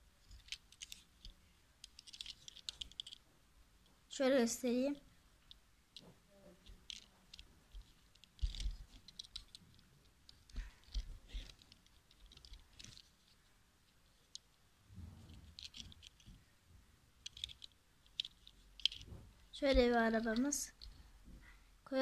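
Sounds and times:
toy car clicks and thumps: 0.2 - 3.2, 6.6 - 13.3, 15.3 - 16.4, 17.2 - 21.0.

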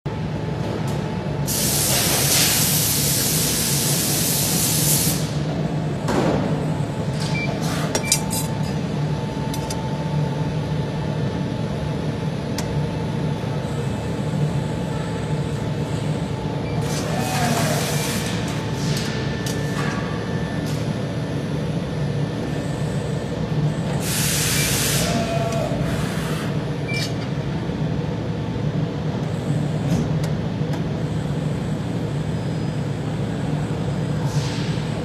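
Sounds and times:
machinery hum: 0.1 - 35.0
hiss of air: 1.5 - 5.4, 24.0 - 25.2.

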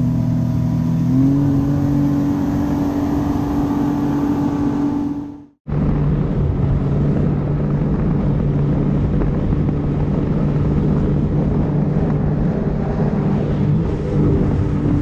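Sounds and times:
jet ski engine running: 0.0 - 15.0
water rushing past hull: 0.0 - 15.0
wind buffeting microphone: 0.0 - 15.0.

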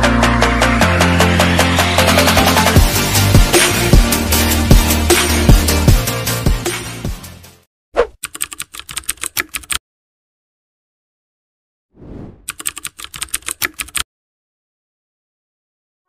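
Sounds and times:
keyboard key clicks: 8.2 - 9.8, 12.5 - 14.0.

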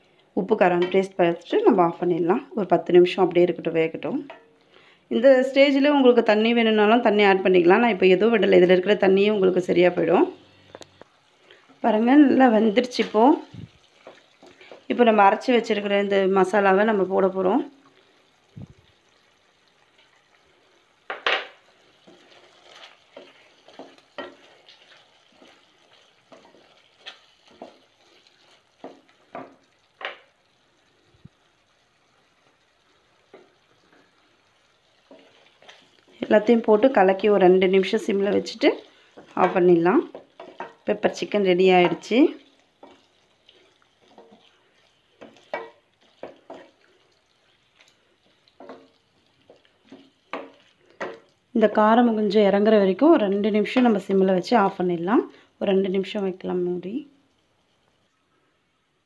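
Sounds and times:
wooden spatula scraping pan: 12.6 - 15.0, 22.0 - 30.2, 37.5 - 51.3.

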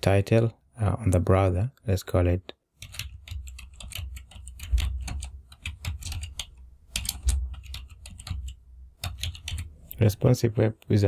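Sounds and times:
typing on computer keyboard: 2.8 - 10.0.

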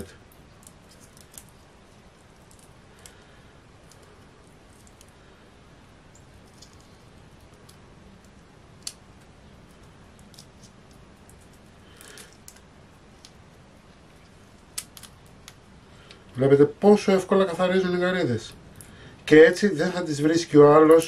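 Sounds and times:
shrimp shell crackling peeled: 0.0 - 5.3, 6.0 - 16.2.

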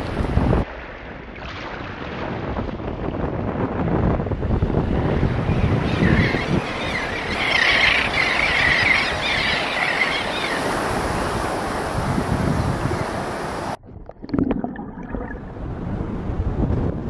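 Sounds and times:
surf: 0.0 - 13.8
wind: 0.0 - 17.0
seabirds calling: 5.2 - 13.8.

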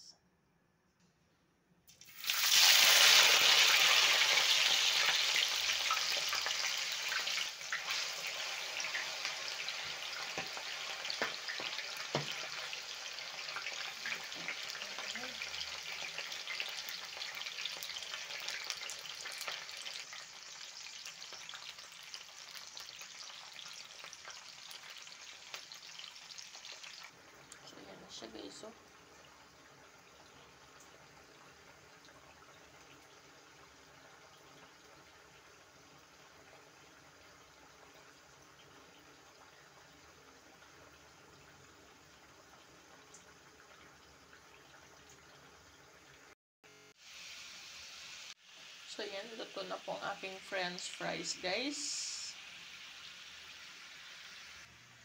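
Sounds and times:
potatoes sizzling in hot oil: 2.0 - 28.7, 46.8 - 55.0.

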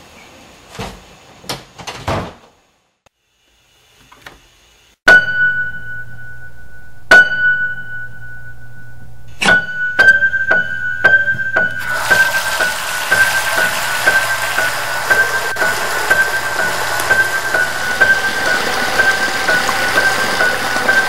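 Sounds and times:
high piano note ringing: 5.1 - 21.0
low hum: 7.7 - 11.8.

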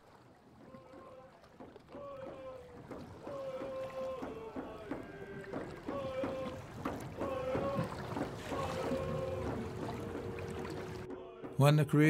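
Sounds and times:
sharp knocks: 1.6 - 11.6.

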